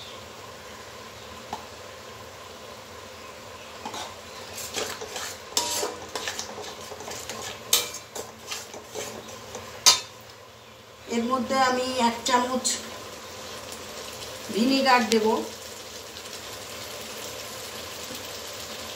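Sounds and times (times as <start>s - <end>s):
metal spatula scraping a pan: 3.8s - 10.2s.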